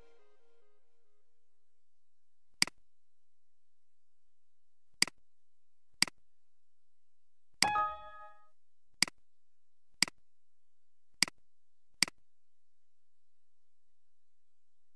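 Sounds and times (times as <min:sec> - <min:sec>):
computer chime: 0:07.6 - 0:08.4.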